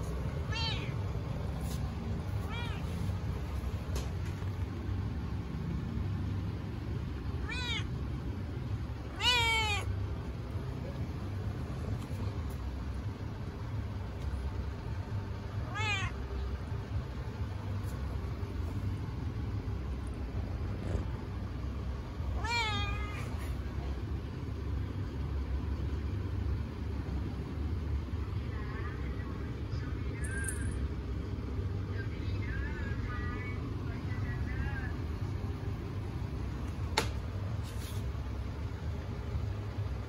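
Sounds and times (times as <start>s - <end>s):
cat meowing: 0.5s - 1.0s, 2.4s - 3.1s, 7.4s - 7.9s, 9.1s - 9.9s, 15.6s - 16.2s, 22.3s - 23.4s.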